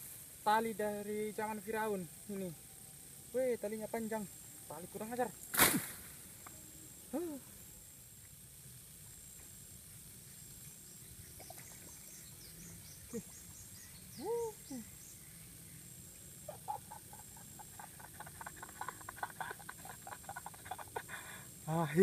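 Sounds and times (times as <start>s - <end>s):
faint bird chirps: 9.1s - 21.9s
frog calling: 11.2s - 15.4s, 16.1s - 21.4s.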